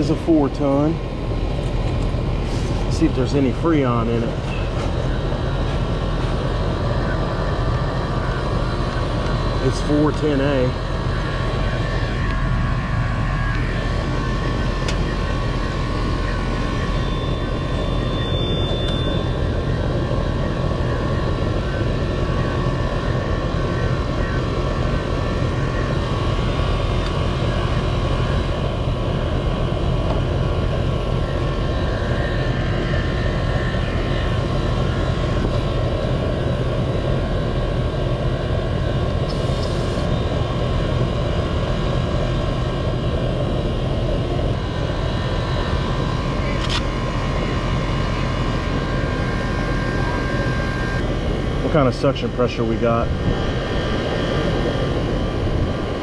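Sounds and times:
air conditioner condenser running: 0:00.0 - 0:56.0.

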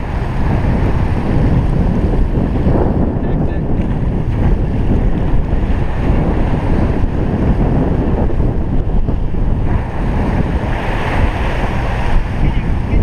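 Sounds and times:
boat engine rumble: 0:00.0 - 0:13.0
water wash at stern: 0:00.0 - 0:13.0
wind buffeting microphone: 0:00.0 - 0:13.0.

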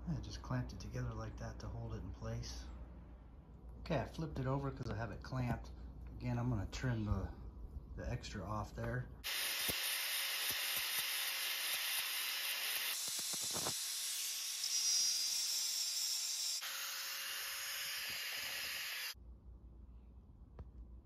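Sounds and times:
angle grinder grinding metal: 0:09.2 - 0:19.2.

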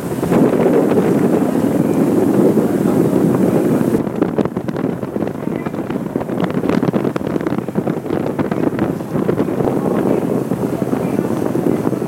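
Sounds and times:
ship engine rushing: 0:00.0 - 0:12.0
water rushing: 0:00.0 - 0:12.0
wind buffeting microphone: 0:00.0 - 0:12.0.

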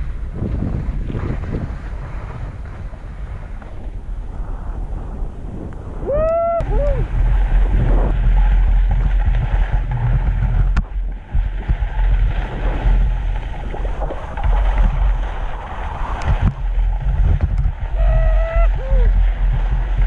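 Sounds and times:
wind buffeting microphone: 0:00.0 - 0:20.0
skier whooping: 0:05.9 - 0:07.2, 0:17.9 - 0:19.2.

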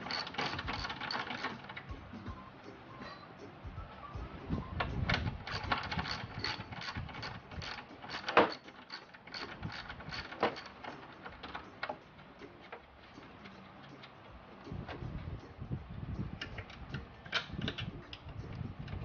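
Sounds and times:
ratchet wrench clicking: 0:00.0 - 0:02.0, 0:05.2 - 0:12.0.

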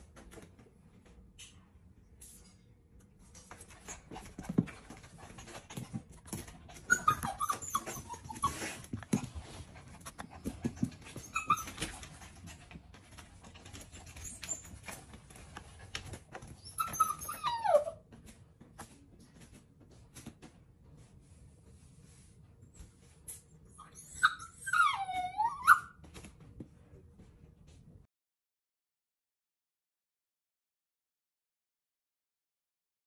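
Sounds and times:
puppy whining: 0:06.7 - 0:12.5, 0:13.6 - 0:15.0, 0:16.4 - 0:18.1, 0:23.7 - 0:26.0.

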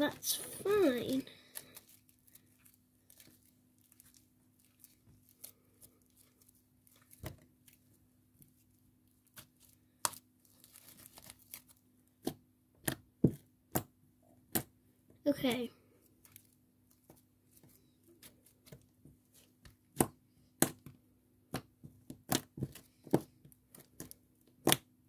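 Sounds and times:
slime crackling and popping: 0:09.3 - 0:14.7.

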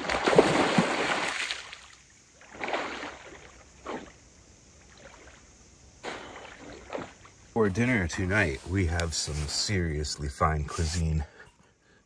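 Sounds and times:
water splashing: 0:00.0 - 0:08.9.

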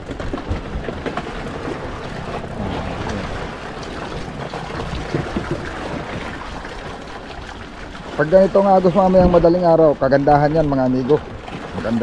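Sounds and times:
sea noise: 0:00.0 - 0:12.0
wind: 0:00.0 - 0:12.0
low rumble: 0:02.4 - 0:04.3.

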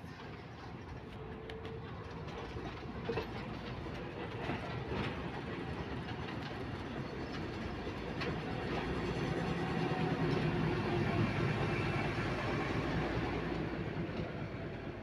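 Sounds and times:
carriages clattering over rail joints: 0:00.0 - 0:15.0
diesel locomotive running: 0:00.0 - 0:15.0.

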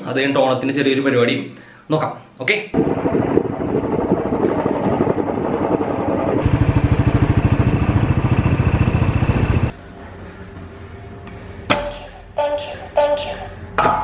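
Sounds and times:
motorcycle engine running: 0:02.8 - 0:09.7.

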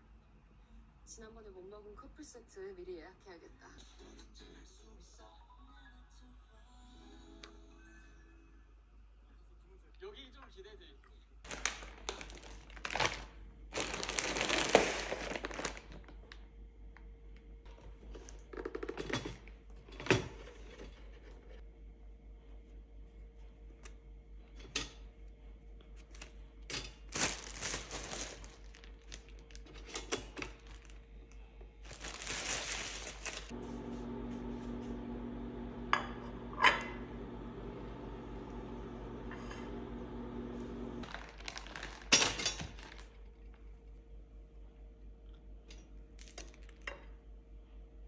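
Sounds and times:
plastic bag crinkling: 0:11.5 - 0:16.4, 0:27.0 - 0:31.2, 0:31.8 - 0:33.6, 0:41.0 - 0:43.6
toaster humming: 0:11.5 - 0:21.8, 0:23.6 - 0:44.3.

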